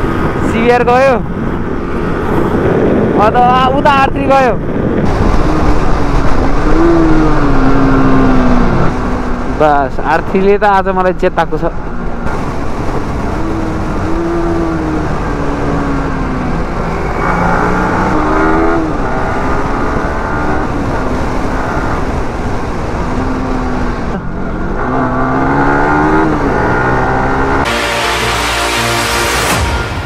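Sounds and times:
wind rush: 0.0 - 30.0
motorcycle engine revving: 4.9 - 10.0, 11.8 - 27.8.

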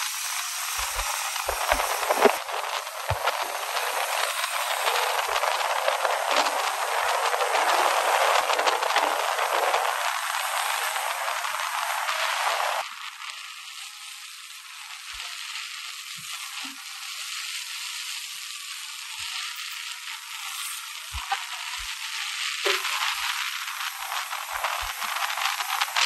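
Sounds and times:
rattling crackle: 0.0 - 11.9
wind and road noise hiss: 0.0 - 26.0.

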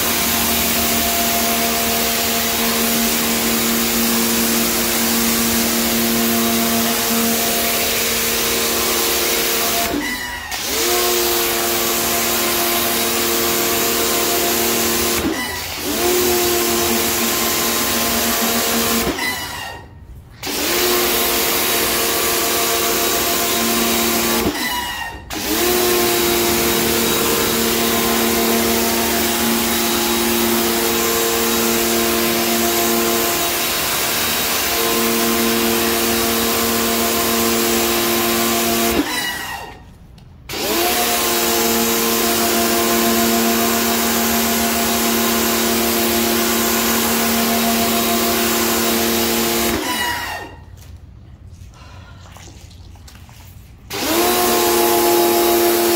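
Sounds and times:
pressure washer motor hum: 0.0 - 50.8, 53.8 - 55.9
motor rising whine: 25.4 - 33.6.

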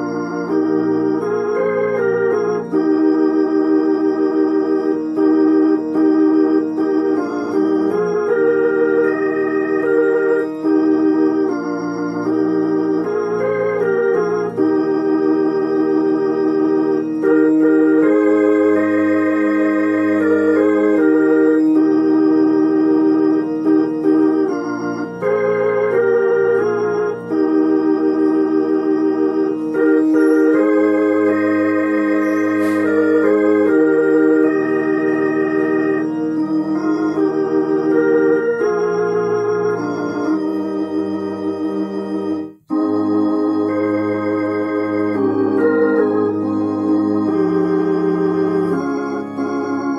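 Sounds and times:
organ playing hymn chords: 0.0 - 49.9.

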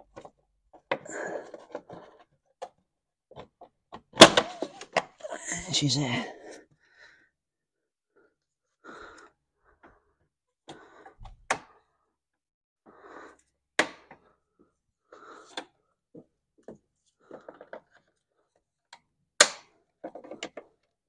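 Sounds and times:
rustling and scraping plastic parts: 0.0 - 5.3, 15.4 - 18.9, 19.9 - 21.0.

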